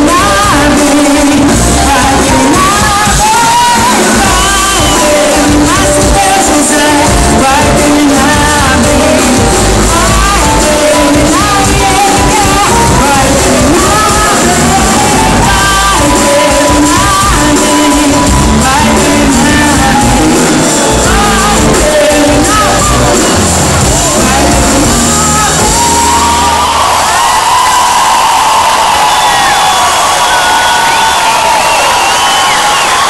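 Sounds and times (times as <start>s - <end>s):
woman singing pop song: 0.0s - 26.2s
live band through pa system: 0.0s - 33.0s.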